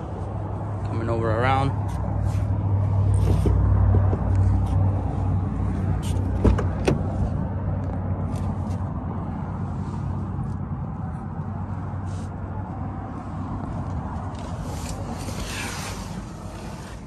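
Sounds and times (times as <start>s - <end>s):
low vehicle hum: 0.0s - 17.0s
car door latch clicks: 6.2s - 7.1s.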